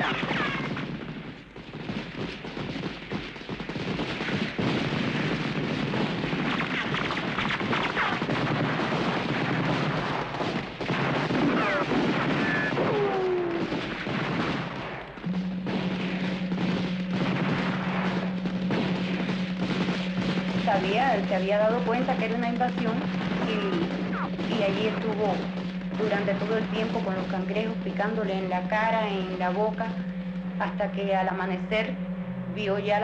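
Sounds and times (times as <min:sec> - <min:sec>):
machine-gun bursts and rifle shots: 0:00.0 - 0:30.7
steady low tone: 0:15.2 - 0:33.0.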